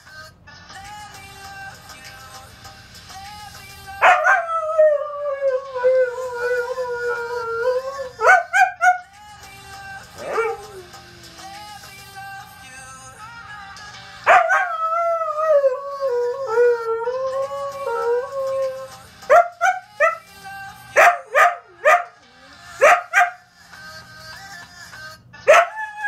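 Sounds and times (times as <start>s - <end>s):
song playing in background: 0.0s - 26.0s
dog howling: 4.0s - 9.1s, 10.2s - 11.5s, 14.3s - 20.2s, 25.5s - 26.0s.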